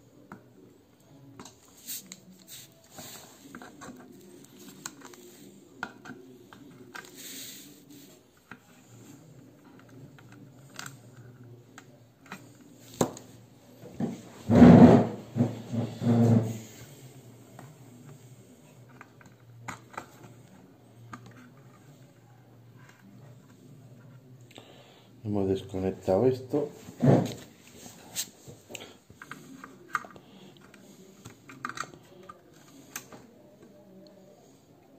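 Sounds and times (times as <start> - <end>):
muffled handling noise: 0.2 - 16.9.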